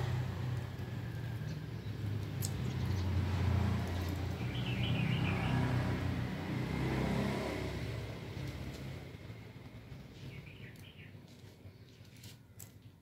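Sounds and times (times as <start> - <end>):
vehicle engine rumble: 0.0 - 13.0
bird chirping: 1.3 - 5.8, 9.8 - 12.2.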